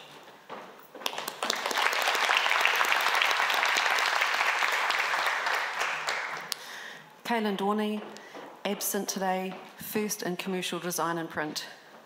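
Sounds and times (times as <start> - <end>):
audience applauding: 1.0 - 6.6.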